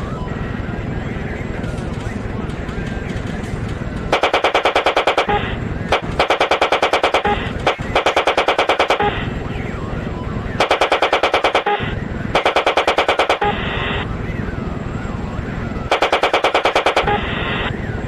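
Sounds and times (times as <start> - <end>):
steady rushing noise: 0.6 - 18.0
automatic cannon firing bursts: 4.1 - 9.1, 10.6 - 13.6, 15.9 - 17.3.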